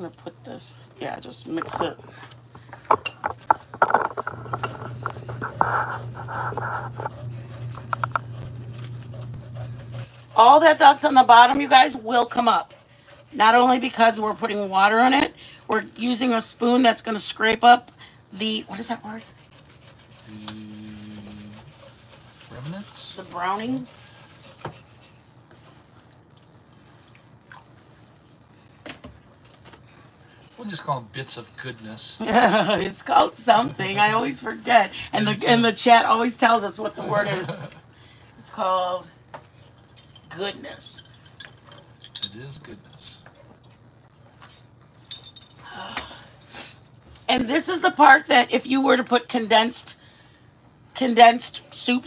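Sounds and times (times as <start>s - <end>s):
steady low hum: 0.0s - 52.0s
wooden spoon scraping skillet: 2.7s - 15.3s, 18.4s - 26.0s.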